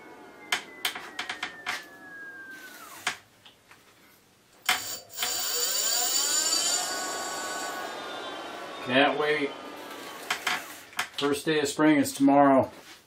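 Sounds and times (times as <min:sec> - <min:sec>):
electric motor whine: 0:00.0 - 0:03.2.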